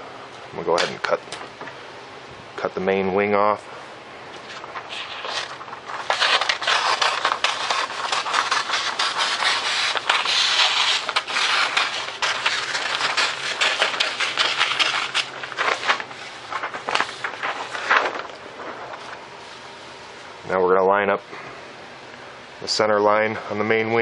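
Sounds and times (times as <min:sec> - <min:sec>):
paper rustling: 0:04.3 - 0:19.6
scissors cutting paper: 0:04.9 - 0:16.0.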